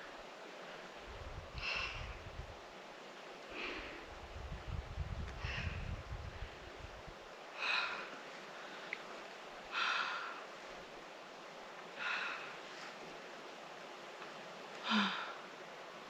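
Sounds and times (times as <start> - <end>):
faint steady hiss: 0.0 - 16.0
person breathing hard: 7.6 - 9.0, 9.7 - 10.4, 12.0 - 13.0, 14.8 - 15.4.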